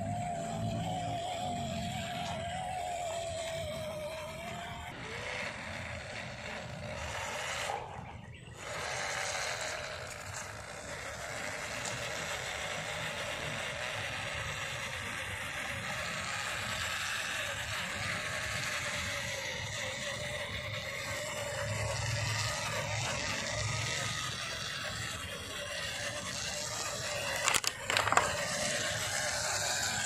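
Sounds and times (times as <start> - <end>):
toy car electric motor whining: 0.0 - 30.0.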